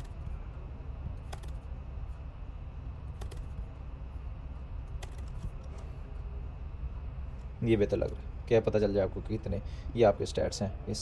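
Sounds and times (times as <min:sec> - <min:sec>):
low hum: 0:00.0 - 0:11.0
keyboard and mouse clicks: 0:01.2 - 0:01.7, 0:03.1 - 0:03.6, 0:04.9 - 0:05.8.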